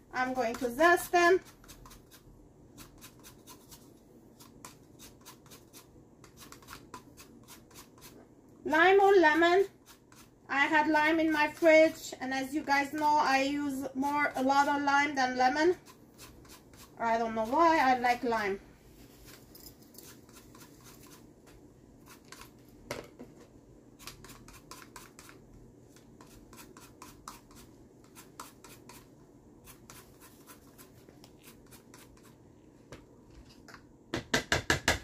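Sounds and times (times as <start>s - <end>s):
zester scraping lime rind: 1.4s - 8.2s, 15.7s - 17.8s.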